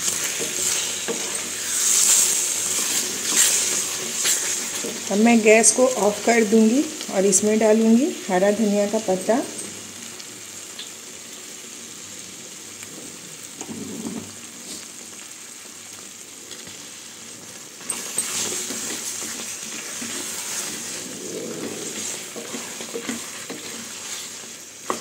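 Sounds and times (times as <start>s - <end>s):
wooden spatula stirring and scraping: 0.0s - 5.8s, 17.8s - 25.0s
thick gravy sizzling in a pan: 0.0s - 25.0s.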